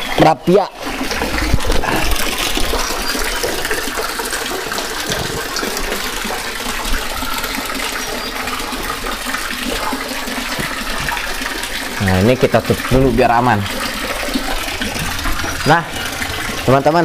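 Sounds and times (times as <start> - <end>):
water rushing in a ditch: 0.0 - 17.0.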